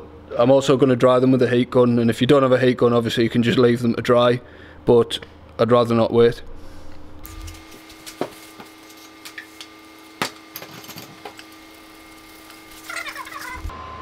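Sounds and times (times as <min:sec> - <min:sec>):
heat gun blowing with whine: 0:07.2 - 0:13.7.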